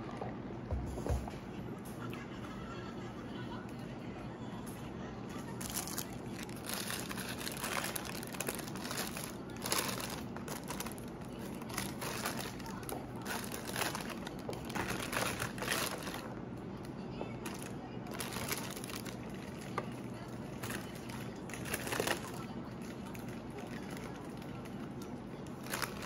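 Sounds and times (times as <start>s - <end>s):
paper wrapper crinkling: 5.5s - 16.4s, 17.4s - 26.0s.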